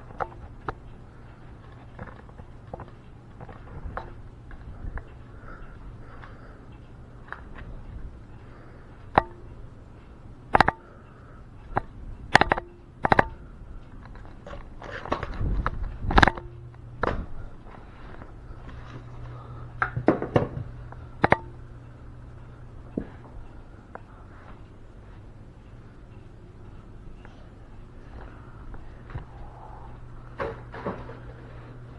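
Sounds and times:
sharp clicks and knocks: 0:00.0 - 0:01.0, 0:01.6 - 0:05.2, 0:09.0 - 0:10.9, 0:11.6 - 0:17.4, 0:19.8 - 0:21.6.

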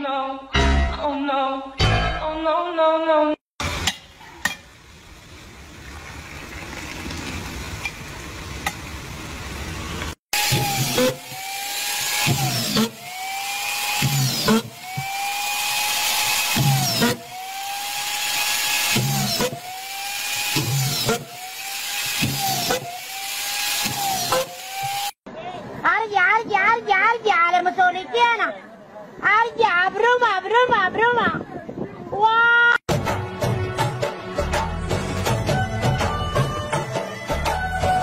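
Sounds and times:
motor whine: 0:10.0 - 0:25.2.

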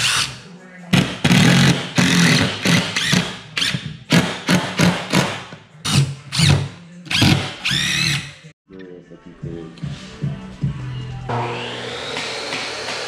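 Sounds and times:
impact driver driving screws: 0:01.2 - 0:08.3.

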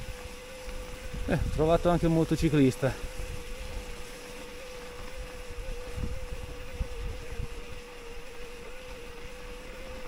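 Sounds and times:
wind rumble on microphone: 0:01.0 - 0:02.1, 0:05.5 - 0:07.8.

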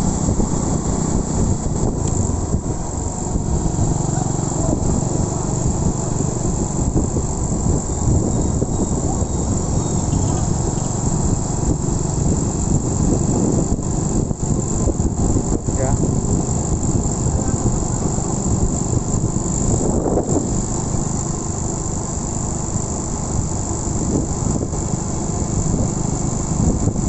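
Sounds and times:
high-pitched whine: 0:00.0 - 0:21.6
wind rumble on microphone: 0:00.0 - 0:21.6, 0:22.5 - 0:27.0
motorcycle engine running: 0:00.0 - 0:27.0.

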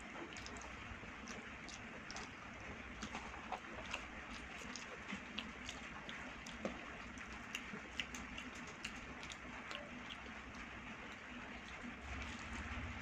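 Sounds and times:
fingers squishing rice on plate: 0:00.2 - 0:12.7.

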